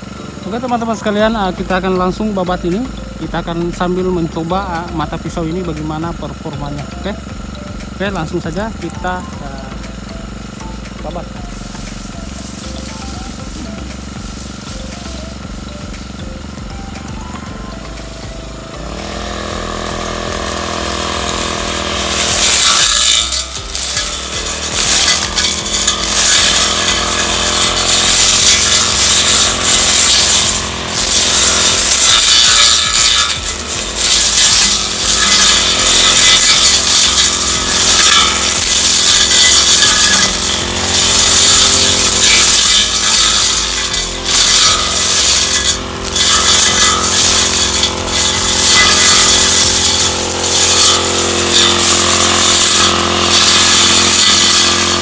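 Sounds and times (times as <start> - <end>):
brush cutter engine revving: 0.0 - 55.0
blade slashing through grass: 11.2 - 15.3, 19.1 - 55.0.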